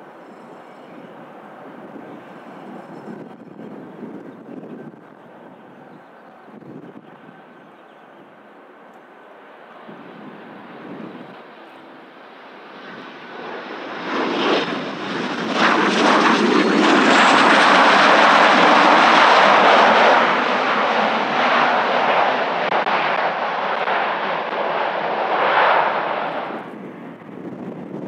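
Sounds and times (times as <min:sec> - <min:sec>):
jet roar passing: 0:09.4 - 0:28.0.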